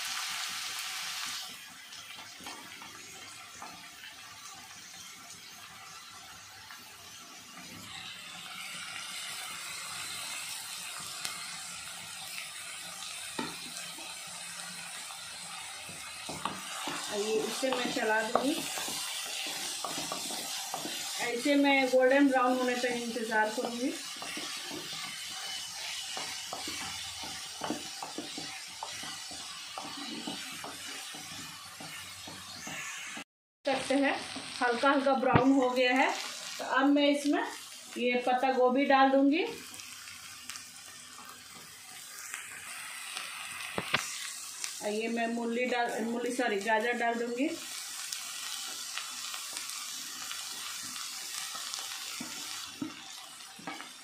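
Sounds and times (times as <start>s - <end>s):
onions sizzling in oil: 0.0s - 54.0s
spatula scraping a pan: 15.0s - 33.2s.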